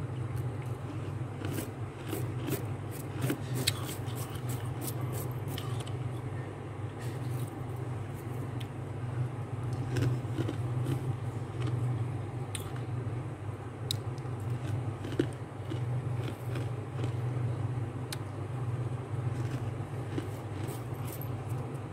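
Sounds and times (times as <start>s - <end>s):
fingers crunching freezer frost: 0.4s - 5.9s, 9.7s - 11.8s, 13.9s - 17.2s, 19.3s - 21.2s.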